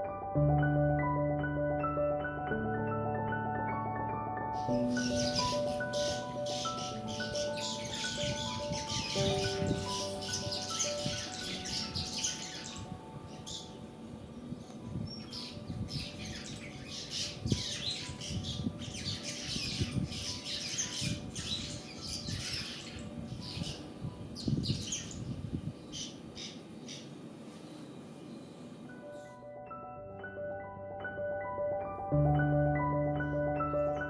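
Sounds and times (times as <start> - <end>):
birds twittering and chattering: 4.6 - 28.6.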